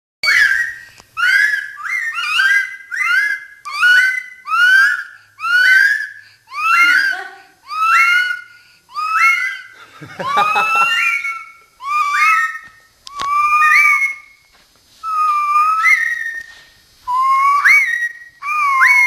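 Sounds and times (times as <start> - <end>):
parrot rising calls: 0.2 - 19.0
girl calling: 1.2 - 8.4, 17.1 - 19.0.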